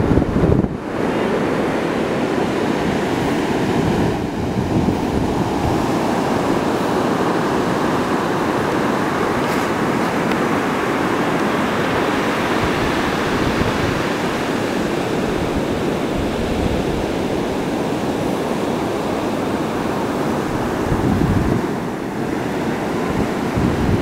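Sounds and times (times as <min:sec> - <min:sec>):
wind on microphone: 0:00.0 - 0:24.0
waves breaking: 0:00.1 - 0:24.0.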